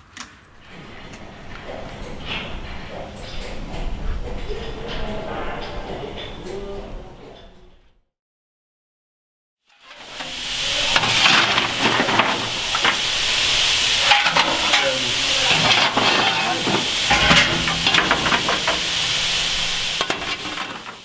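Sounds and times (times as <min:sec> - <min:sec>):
steam locomotive hissing: 0:09.8 - 0:21.0.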